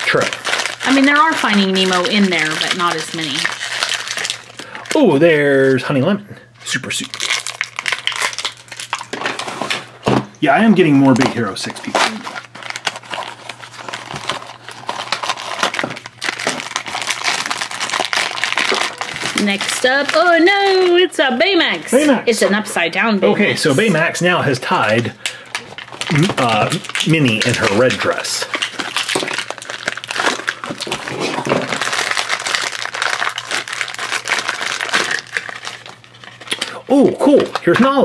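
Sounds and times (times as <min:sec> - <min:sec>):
foil bag crinkling: 0:00.0 - 0:05.8, 0:06.6 - 0:10.0, 0:11.0 - 0:22.1, 0:23.6 - 0:37.9
cardboard packaging handled: 0:11.1 - 0:21.0, 0:25.6 - 0:36.5.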